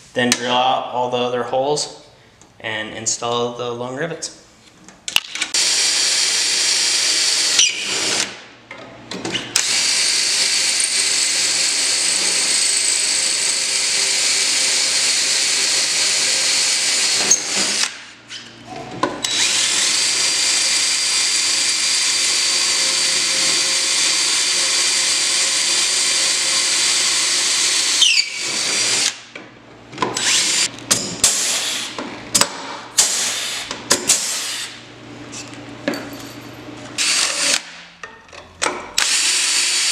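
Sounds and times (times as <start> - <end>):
cordless drill boring through metal: 5.6 - 8.3, 9.6 - 18.0, 19.2 - 29.2, 30.2 - 30.7, 37.0 - 37.6, 39.0 - 39.9.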